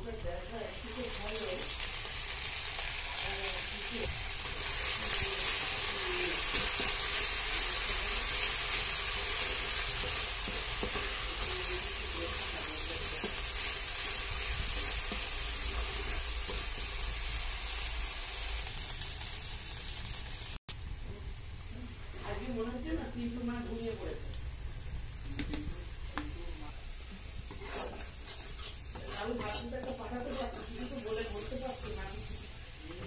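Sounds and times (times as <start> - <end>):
paste sizzling in hot oil: 0.1 - 20.6, 26.1 - 33.0
spatula scraping wok: 1.1 - 18.3, 26.8 - 33.0.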